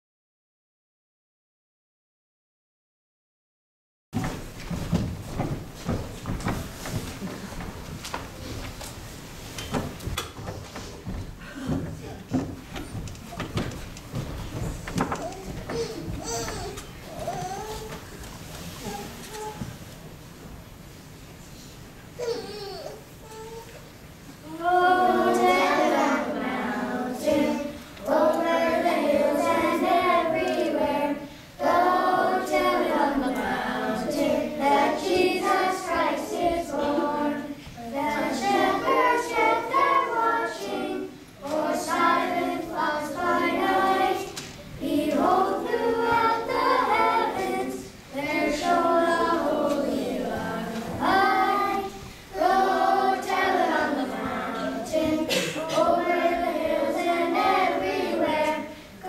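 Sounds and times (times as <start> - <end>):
children's choir singing: 24.4 - 59.0.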